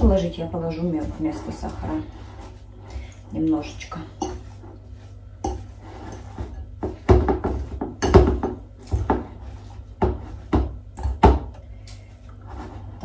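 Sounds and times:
steady low hum: 0.0 - 13.0
utensils tapping against bowl: 3.9 - 4.6, 5.4 - 9.2.

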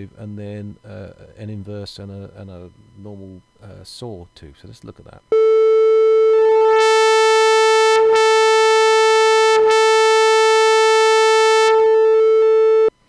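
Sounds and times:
buzzy synthesizer tone: 5.3 - 13.0.

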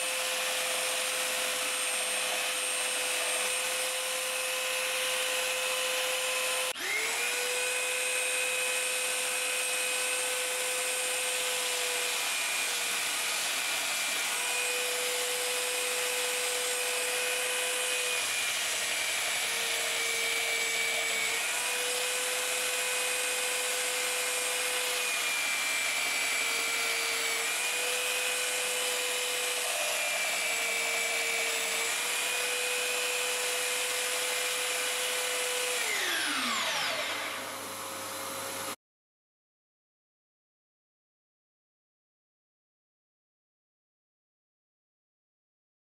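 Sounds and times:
belt sander running: 0.0 - 38.8.

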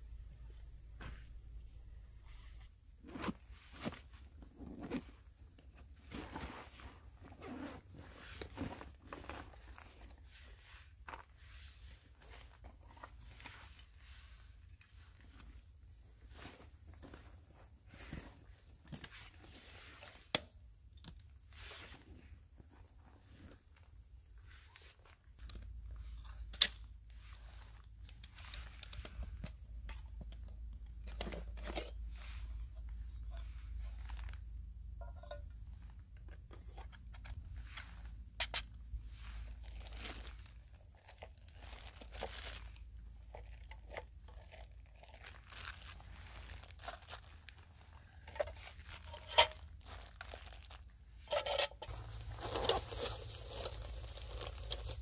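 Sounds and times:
bags rustling: 39.0 - 55.0
packet crinkling: 39.6 - 50.9, 51.9 - 55.0.

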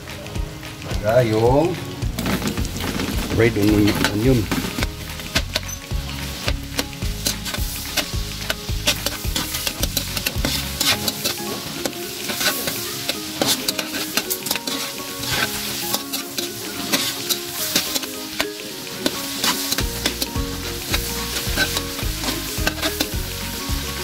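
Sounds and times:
background music: 0.0 - 24.0
onions sizzling in a wok: 1.8 - 24.0
metal spatula scraping a pan: 7.2 - 23.6.

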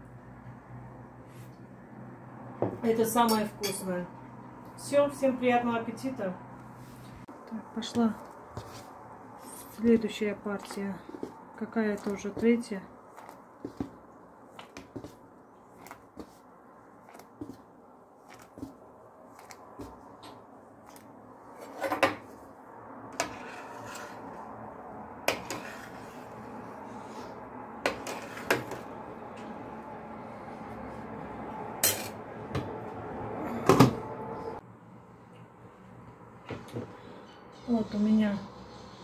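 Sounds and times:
spoon scraping against pot: 23.2 - 24.4, 25.3 - 26.4, 27.8 - 28.8.

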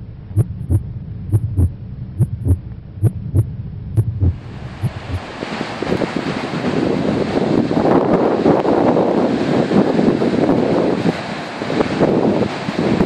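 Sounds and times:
low hum: 0.0 - 6.2
wind on microphone: 0.0 - 13.0
heartbeat thumps: 0.3 - 5.3
surf breaking: 4.2 - 13.0.

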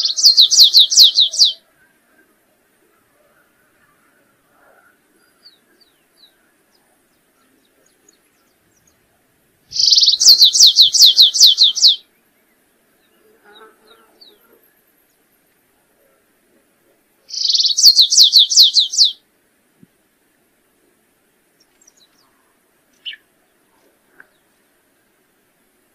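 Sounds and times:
finch singing: 0.0 - 1.6, 9.7 - 12.0, 17.3 - 19.2, 22.9 - 23.2.

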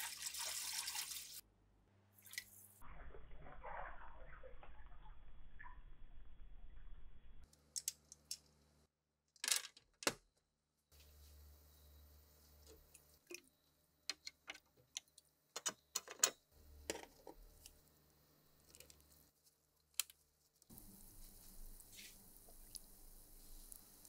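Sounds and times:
bubbles fizzing: 0.0 - 1.4
metal parts clicking and tapping: 14.1 - 17.4.

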